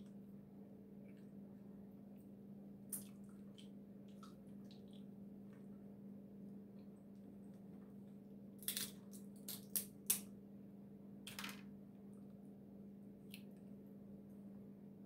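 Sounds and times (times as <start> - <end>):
steady low hum: 0.0 - 15.0
crab shell cracking: 8.6 - 10.3.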